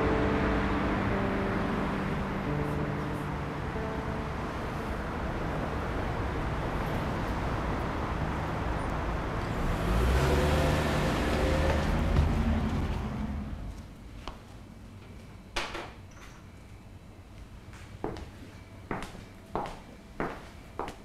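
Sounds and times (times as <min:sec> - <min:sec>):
loud vehicle passing: 0:00.0 - 0:13.8
cars passing on road: 0:00.0 - 0:14.0.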